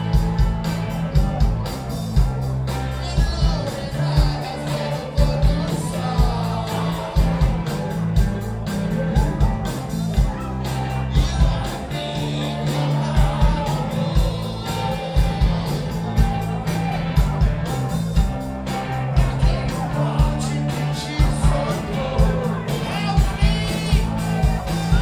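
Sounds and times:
drums steady beat: 0.0s - 25.0s
electric guitars: 0.0s - 25.0s
person singing: 2.7s - 16.9s, 18.9s - 25.0s.

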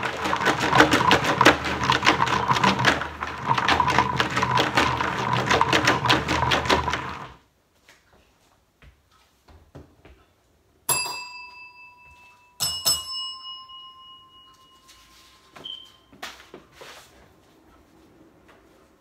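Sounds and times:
service bell dings: 10.9s - 15.6s.

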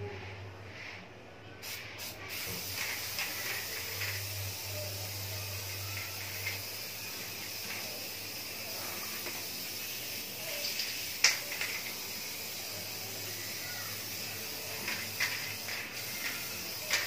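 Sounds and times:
aerosol spray hiss: 1.6s - 17.0s
spray can clicks and taps: 1.7s - 4.3s, 5.9s - 6.8s, 7.4s - 8.2s, 10.5s - 12.1s, 14.7s - 17.0s.

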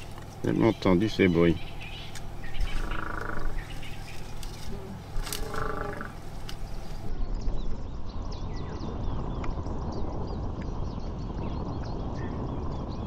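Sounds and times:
birds chirping: 0.0s - 13.0s
low rumble: 0.0s - 13.0s
elephant drawn-out pitched noises: 4.6s - 6.4s.

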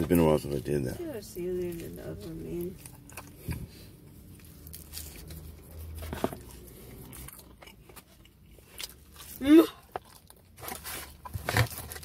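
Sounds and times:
person chewing pizza: 1.6s - 12.0s.

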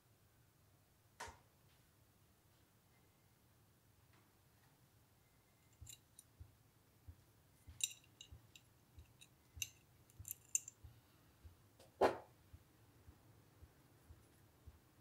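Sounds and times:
small metal parts clicking: 5.6s - 6.3s, 7.7s - 10.8s.

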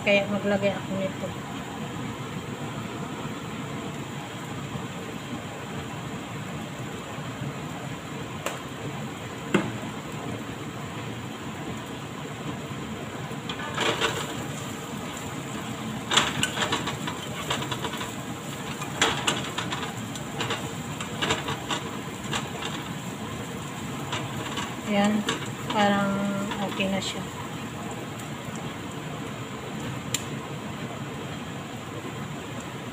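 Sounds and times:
onions frying in a wok: 0.0s - 32.9s.

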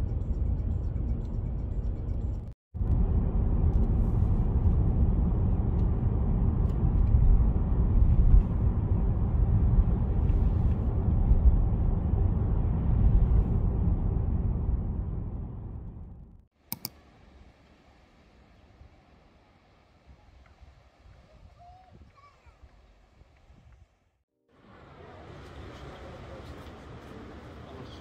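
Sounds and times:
low rumbling noise: 2.8s - 16.4s.

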